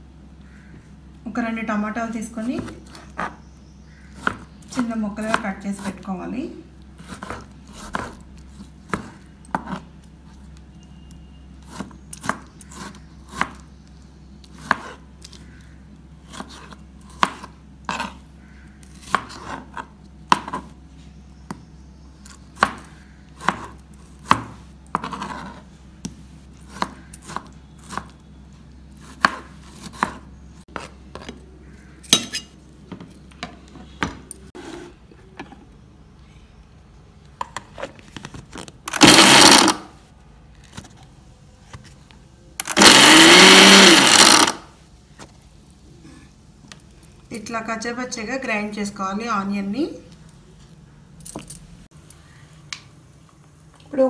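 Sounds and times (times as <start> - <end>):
knife chopping on plastic board: 4.2 - 4.5, 7.0 - 8.2, 16.3 - 18.2, 18.9 - 20.7, 22.6 - 28.1, 29.0 - 31.4.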